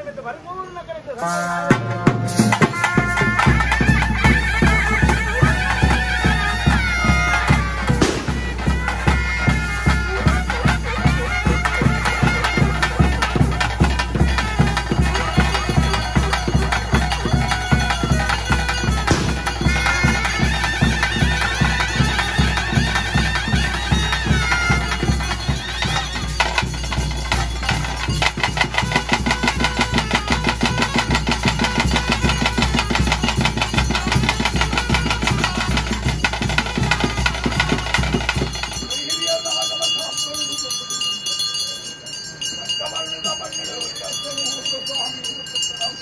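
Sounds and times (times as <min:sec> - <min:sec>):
reedy double-reed pipe melody: 0:00.6 - 0:46.0
steady drum beat: 0:01.6 - 0:40.8.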